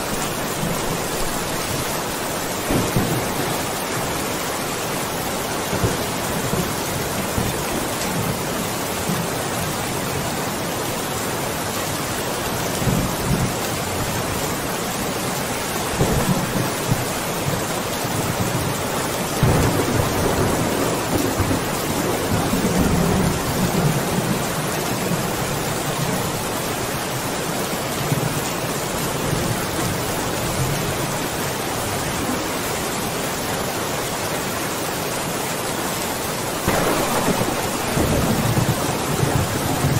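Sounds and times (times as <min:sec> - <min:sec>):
heavy rain hissing: 0:00.0 - 0:10.8, 0:15.0 - 0:39.9
thunder rumbling: 0:00.1 - 0:07.6, 0:15.8 - 0:17.7, 0:19.4 - 0:24.6, 0:36.6 - 0:39.9.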